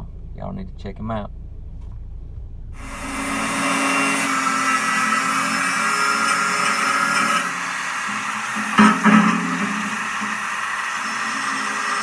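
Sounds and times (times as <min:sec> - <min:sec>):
angle grinder grinding steel: 0:02.8 - 0:12.0.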